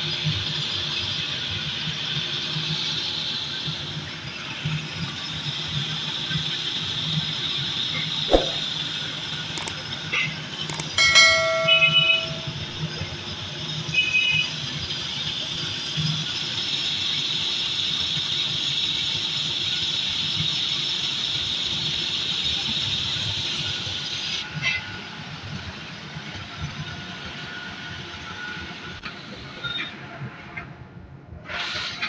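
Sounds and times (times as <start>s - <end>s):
short knock: 8.3s - 8.7s.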